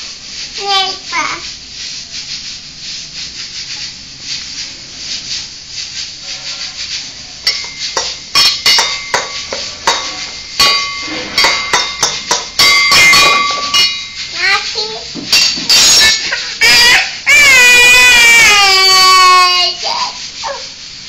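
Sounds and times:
spoon scraping in steel pot: 0:06.2 - 0:14.3
spoon clinking against pot: 0:07.4 - 0:14.2, 0:15.2 - 0:16.3.

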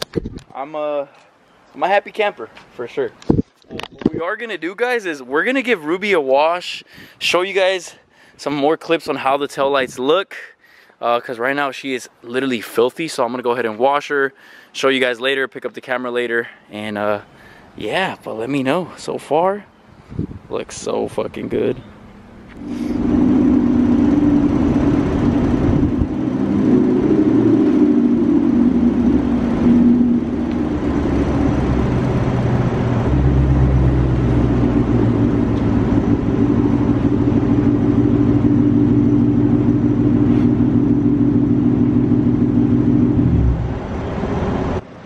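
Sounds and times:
car engine idling: 0:21.9 - 0:44.8
deep low rumble: 0:22.4 - 0:44.8.

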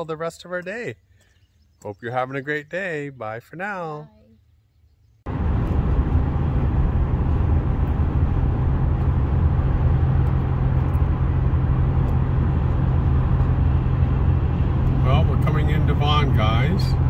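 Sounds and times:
car road and engine noise: 0:05.2 - 0:17.0.

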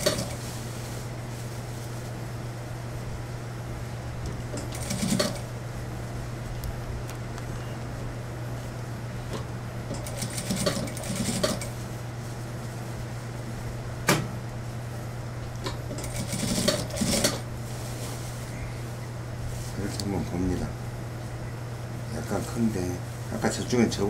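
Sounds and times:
steady low hum: 0:00.0 - 0:24.0
sewing machine stitching: 0:04.6 - 0:05.4, 0:09.9 - 0:11.7, 0:15.9 - 0:17.4.

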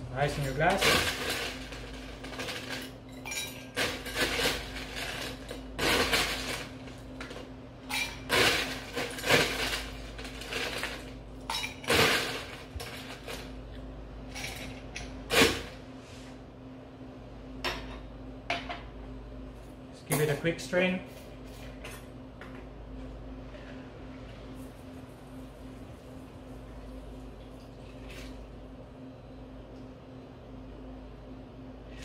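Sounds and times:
ice cubes clinking in glass: 0:00.7 - 0:06.7.

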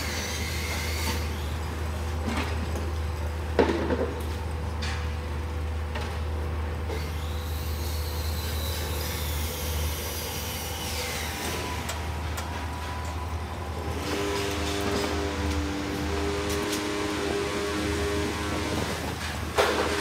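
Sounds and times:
diesel engine droning: 0:11.0 - 0:20.0.

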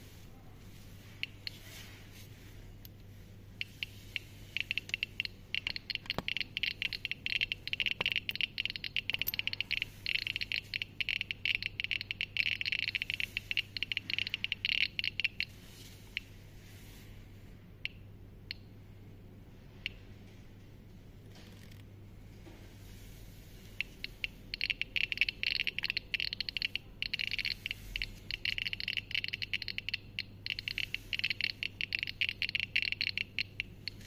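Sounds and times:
geiger counter clicking: 0:03.6 - 0:16.4, 0:17.8 - 0:18.7, 0:23.6 - 0:34.0.

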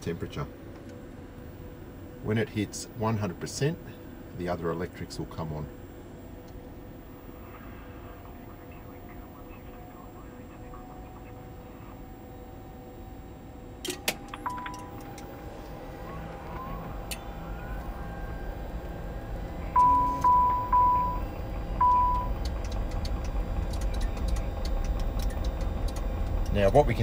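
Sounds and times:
steady electrical hum: 0:00.0 - 0:27.0
short high warning beeps: 0:19.7 - 0:22.4.

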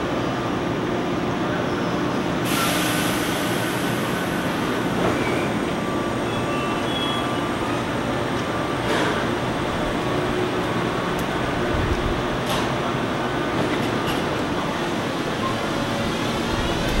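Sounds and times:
electric train running hum: 0:00.0 - 0:17.0
train air hiss: 0:02.3 - 0:05.6.

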